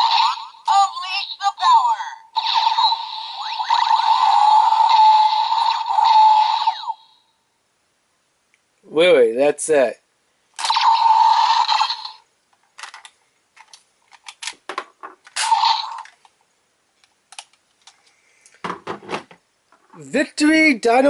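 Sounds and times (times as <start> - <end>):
toy electronic sound effects: 0.0 - 7.2, 10.6 - 12.2, 15.4 - 16.1
plastic toy clicks: 17.3 - 18.0.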